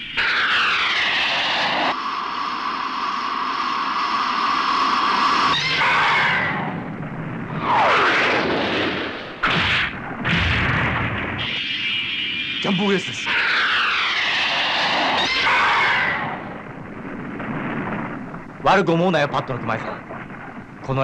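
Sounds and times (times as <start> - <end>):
falling whistle-like sweep: 0.0 - 6.8, 11.3 - 16.6.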